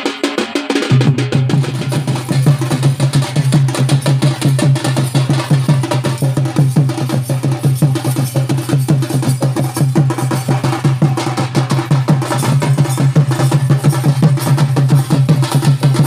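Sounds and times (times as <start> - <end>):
drums beating fast rhythm: 0.0 - 16.0.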